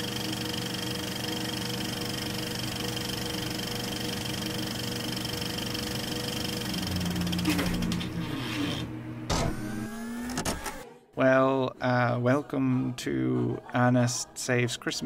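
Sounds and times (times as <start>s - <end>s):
machine-like hum: 0.0s - 10.8s.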